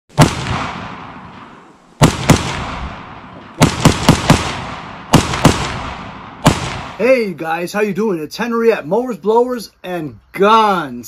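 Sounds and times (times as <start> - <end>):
rifle shots with echo: 0.1 - 7.0.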